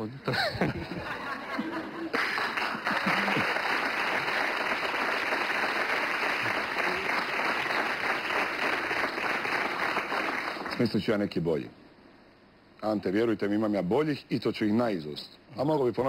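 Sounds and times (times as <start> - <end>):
audience applauding: 2.1 - 10.9.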